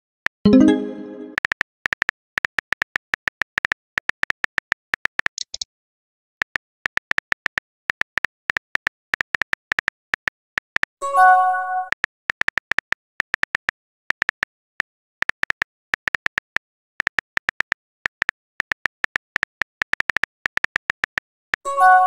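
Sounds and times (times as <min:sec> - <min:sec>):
phone keyboard typing clicks: 0:01.4 - 0:05.6, 0:11.9 - 0:21.6.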